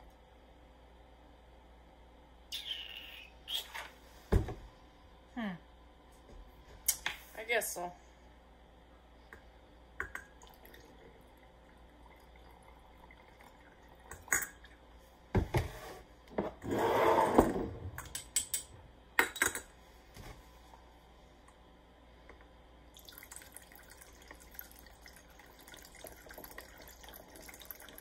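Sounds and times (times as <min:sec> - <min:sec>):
liquid pouring into bottle: 0:10.2 - 0:14.6, 0:23.0 - 0:28.0.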